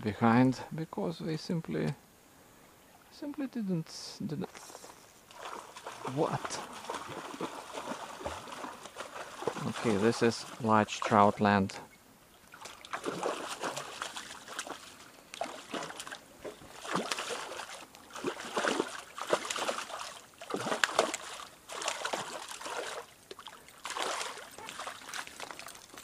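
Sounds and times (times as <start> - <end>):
fish splashing in water: 5.3 - 10.7, 12.5 - 26.0.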